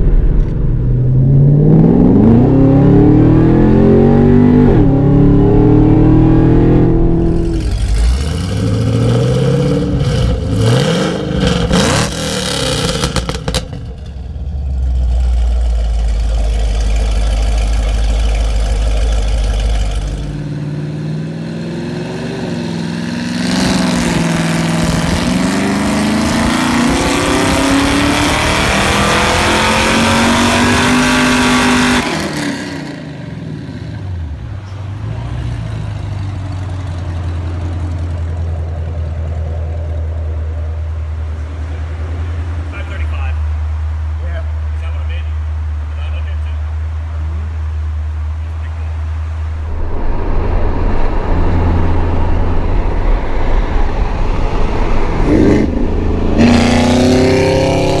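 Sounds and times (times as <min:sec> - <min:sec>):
car engine accelerating: 0:00.0 - 0:58.0
full-throttle engine on dyno: 0:00.0 - 0:58.0
car engine idling: 0:06.7 - 0:11.7, 0:12.4 - 0:21.4.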